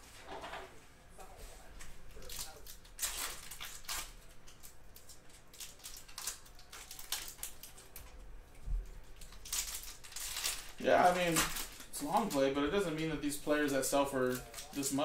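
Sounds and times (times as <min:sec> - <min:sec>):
foil wrapper tearing: 0:02.1 - 0:08.0, 0:09.2 - 0:15.0
cards rustling and clicking: 0:09.1 - 0:15.0.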